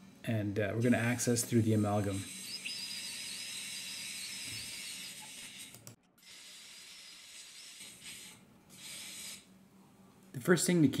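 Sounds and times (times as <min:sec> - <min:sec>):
dental drill hissing: 0:02.1 - 0:09.5.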